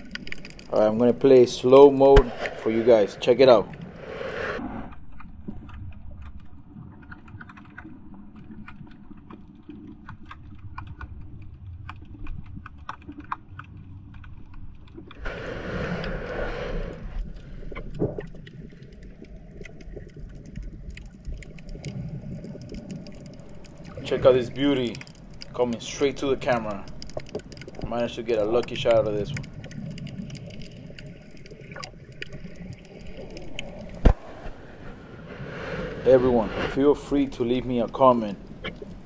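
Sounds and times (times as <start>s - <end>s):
small sharp clicks crackling: 0.0s - 1.4s, 16.0s - 34.2s
muffled underwater rumble: 0.0s - 39.0s
underwater rushing swell: 0.6s - 5.0s, 15.2s - 17.7s, 31.0s - 39.0s.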